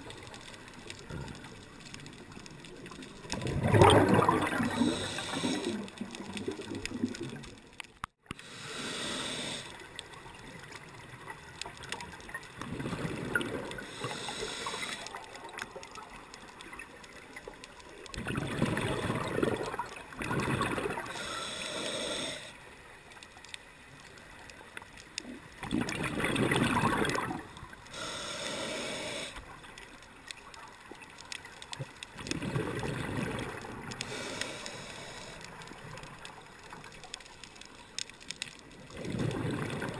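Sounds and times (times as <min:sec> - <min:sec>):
faint wash of water: 0:00.0 - 0:07.4
hissing and bubbling: 0:00.0 - 0:39.9
underwater regulator breathing: 0:04.0 - 0:06.1, 0:08.3 - 0:09.9, 0:13.7 - 0:15.4, 0:20.9 - 0:22.6, 0:27.8 - 0:29.6, 0:34.0 - 0:35.7.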